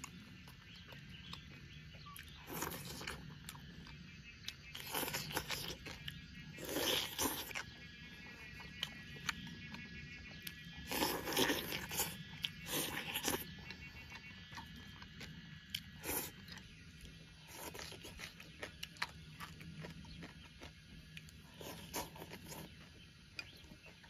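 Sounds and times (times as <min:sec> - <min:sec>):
person biting and chewing: 0:02.1 - 0:03.7, 0:04.5 - 0:07.7, 0:10.5 - 0:13.6, 0:14.6 - 0:16.7, 0:17.4 - 0:22.8.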